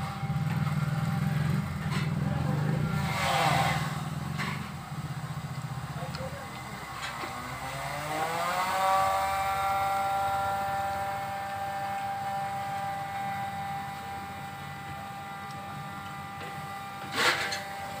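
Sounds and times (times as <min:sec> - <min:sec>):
motor whine: 0:00.0 - 0:18.0.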